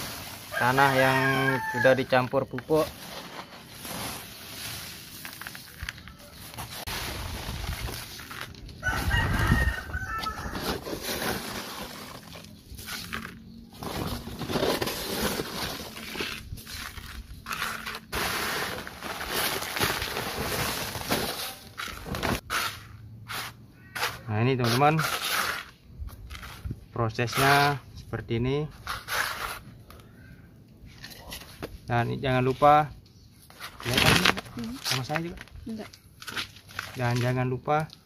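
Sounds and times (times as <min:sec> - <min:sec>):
hands scraping soil in plastic basin: 0:00.0 - 0:27.9, 0:28.7 - 0:30.0
rooster crowing: 0:00.5 - 0:02.2, 0:08.8 - 0:10.9.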